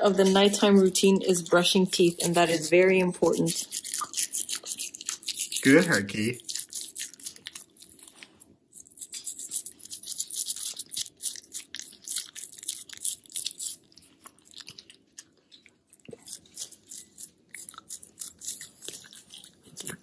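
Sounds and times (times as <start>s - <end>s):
toothbrush scrubbing dog's teeth: 0.0s - 20.0s.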